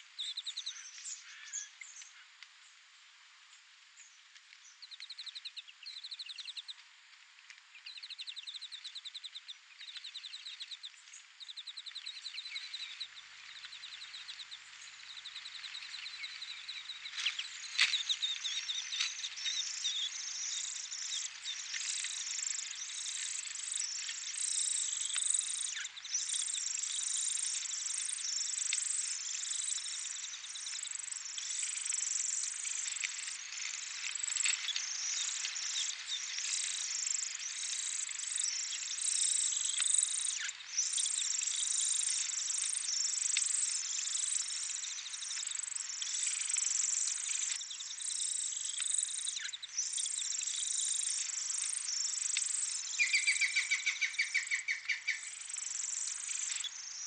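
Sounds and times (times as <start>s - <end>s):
rapid bird trills: 34.2s - 57.0s.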